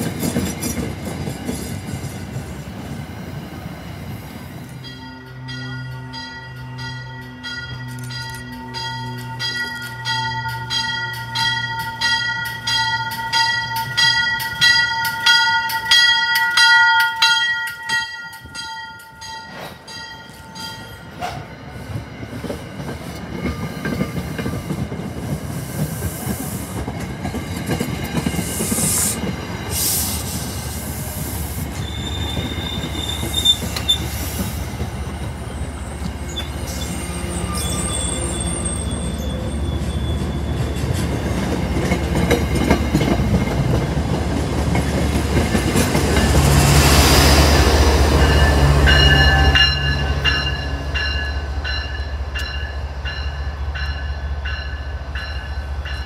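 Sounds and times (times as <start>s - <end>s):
locomotive engine drone: 2.5s - 16.0s, 41.9s - 56.0s
train wheels squealing: 27.8s - 43.2s.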